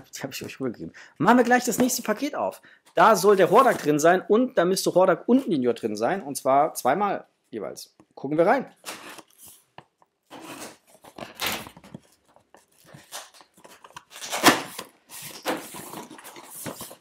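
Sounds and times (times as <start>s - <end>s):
cardboard and tape rustling: 2.9s - 4.1s, 8.8s - 17.0s.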